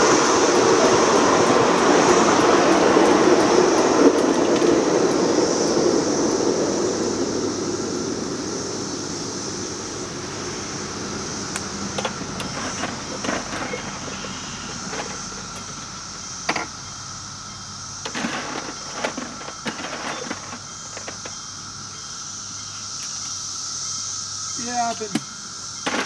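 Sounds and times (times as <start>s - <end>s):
steam hissing: 0.0s - 16.7s
train wheels clunking over rail joints: 11.9s - 16.7s, 18.0s - 21.4s.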